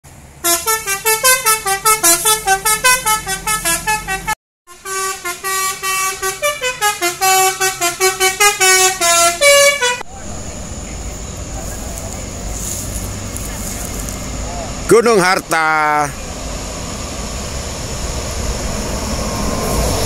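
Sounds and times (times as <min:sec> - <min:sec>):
low engine rumble: 0:00.0 - 0:20.0
multi-tone bus horn tune: 0:00.4 - 0:10.1.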